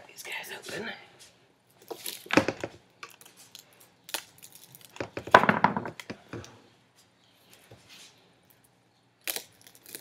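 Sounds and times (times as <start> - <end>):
tape and wrapping rustling: 1.7 - 5.4
plastic rails knocking: 5.0 - 6.2.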